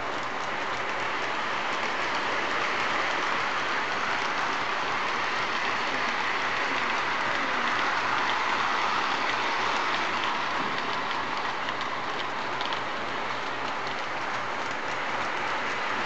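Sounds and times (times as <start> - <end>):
model train wheels whirring on rails: 0.0 - 16.0.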